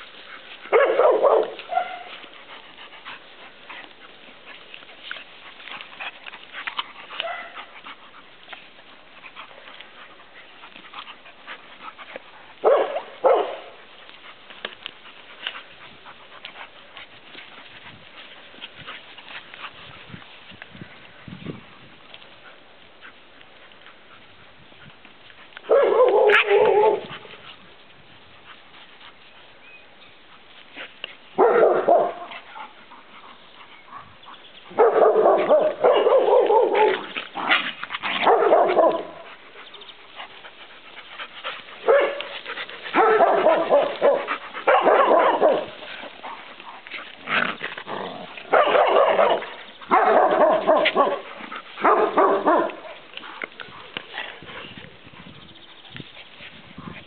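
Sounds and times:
dogs barking in play: 0.0 - 19.8, 25.3 - 27.6, 30.2 - 55.1.

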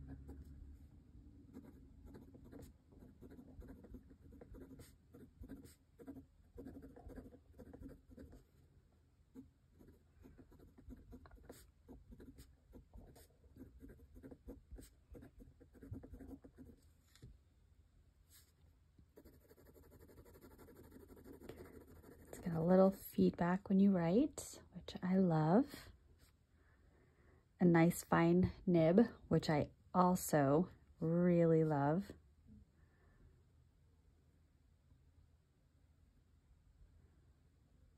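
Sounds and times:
fountain pen scratching on paper: 1.5 - 8.6, 9.3 - 16.9, 19.2 - 23.0.

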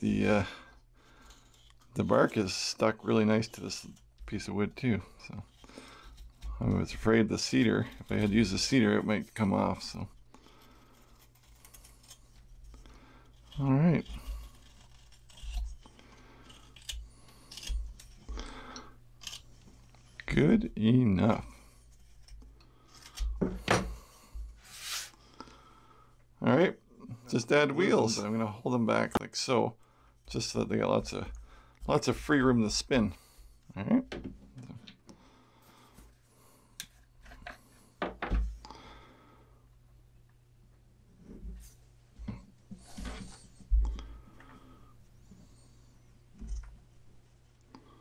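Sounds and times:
carving knife whittling wood: 1.1 - 25.2.

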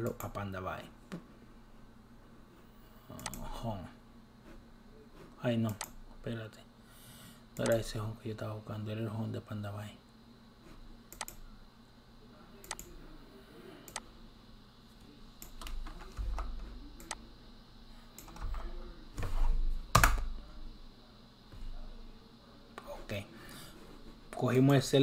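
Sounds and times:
computer keyboard and mouse clicks: 0.0 - 0.4, 3.2 - 3.4, 5.6 - 6.0, 7.6 - 7.8, 11.1 - 11.4, 12.6 - 12.9.

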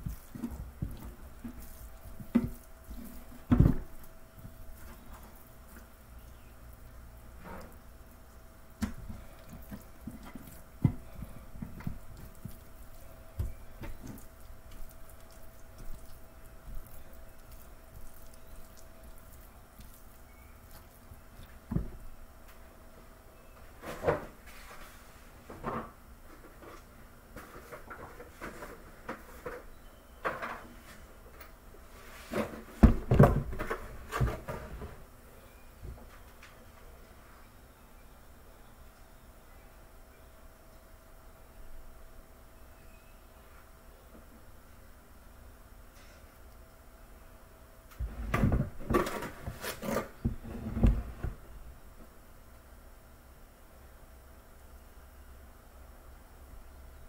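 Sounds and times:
faint steady hum: 0.0 - 57.0
kitchen knocks and clunks: 3.5 - 4.0, 32.8 - 34.9, 48.0 - 49.5
wet squishing of meat: 7.7 - 21.7.

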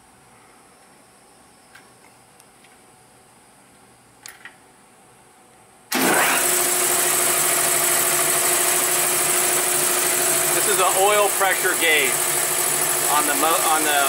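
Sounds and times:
air compressor running: 5.9 - 14.0.

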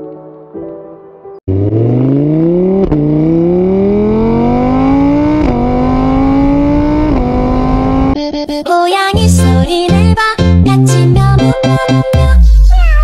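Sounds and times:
engine accelerating through gears: 1.5 - 8.2.

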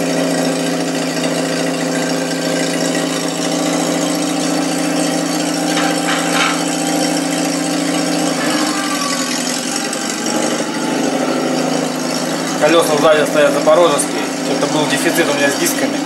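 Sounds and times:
engine idling: 0.0 - 16.0
higher rasping noise: 5.4 - 14.6.

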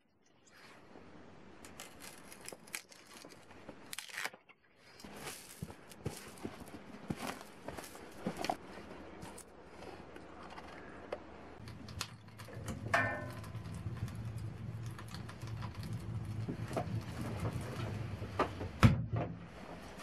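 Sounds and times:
snow crunching: 4.9 - 10.0
firewood burning rumble: 4.9 - 20.0.

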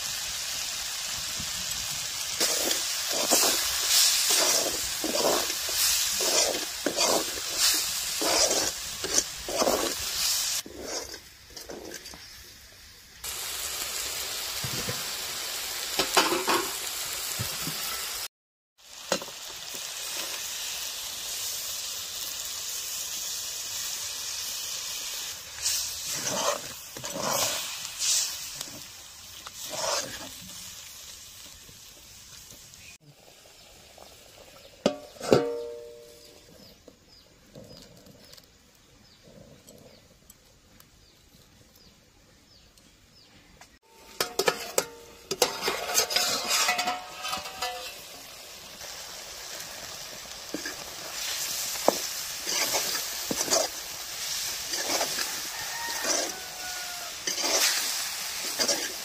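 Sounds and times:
curry sizzling in a pan: 0.0 - 38.6, 43.7 - 59.0
metal ladle scraping in pot: 2.4 - 12.2, 25.6 - 28.3, 29.6 - 30.4, 44.0 - 48.2, 50.5 - 59.0
metal lid clanging onto pan: 34.9 - 36.1, 44.0 - 48.0.

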